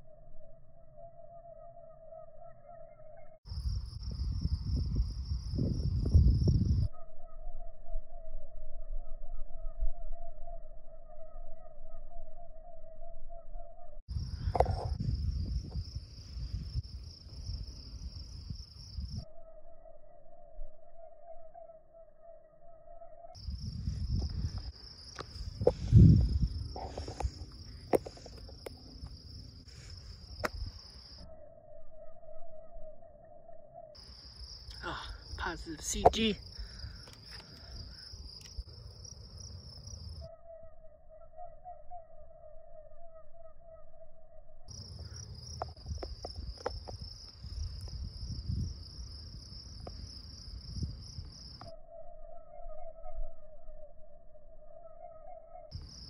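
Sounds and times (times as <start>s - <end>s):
crickets trilling: 0.0s - 56.0s.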